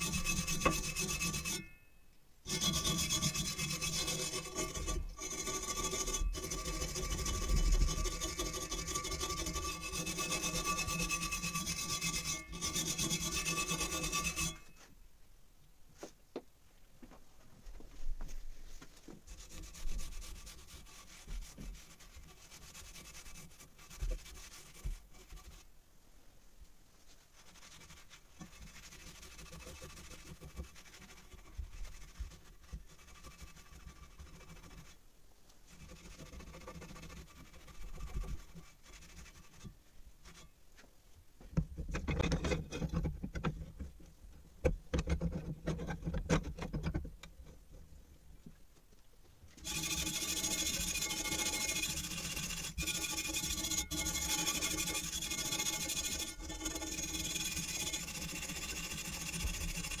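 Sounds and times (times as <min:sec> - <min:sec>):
cloth rubbing on metal blade: 0:00.0 - 0:01.8, 0:02.5 - 0:14.9, 0:19.3 - 0:25.7, 0:27.2 - 0:35.0, 0:35.7 - 0:40.5, 0:49.6 - 1:00.0
knocks and scrapes of metal blade: 0:00.0 - 0:01.8, 0:02.5 - 0:14.8, 0:41.6 - 0:43.9, 0:44.6 - 0:47.3
wire brush scrubbing steel: 0:00.0 - 0:01.8, 0:02.5 - 0:14.9, 0:19.3 - 0:25.6, 0:27.4 - 0:35.0, 0:49.6 - 1:00.0.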